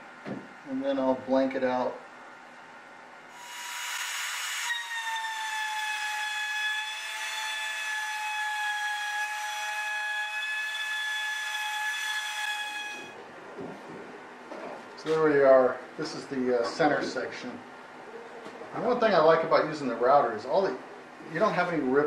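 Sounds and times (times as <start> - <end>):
router spindle air rush: 3.3 - 5.4
router spindle high whine: 3.3 - 5.5.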